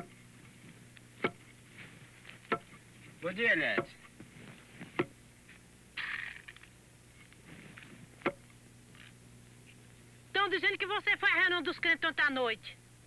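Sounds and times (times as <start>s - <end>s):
scraping rustle: 1.4s - 3.2s, 4.1s - 5.0s, 7.1s - 8.2s
wooden pestle pounding mortar: 2.5s - 2.8s.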